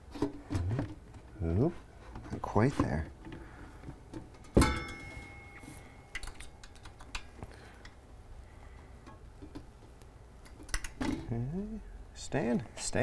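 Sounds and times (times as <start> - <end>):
metal-on-metal clank: 4.4 - 5.7.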